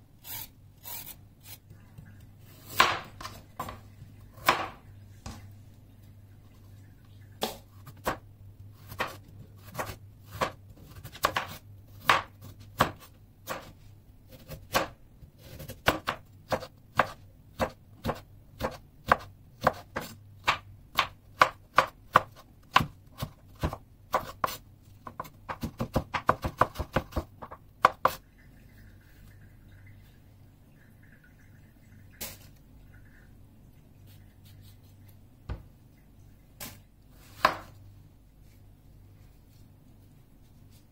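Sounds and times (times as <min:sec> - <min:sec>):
knife chopping on wooden board: 0:08.9 - 0:13.7.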